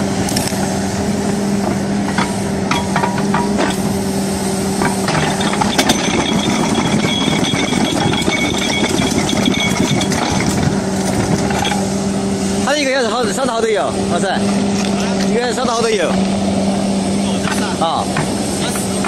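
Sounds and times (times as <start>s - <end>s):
excavator diesel engine under load: 0.0s - 19.0s
high steady whine: 0.0s - 19.0s
steel scraping and cracking rock: 4.9s - 11.9s.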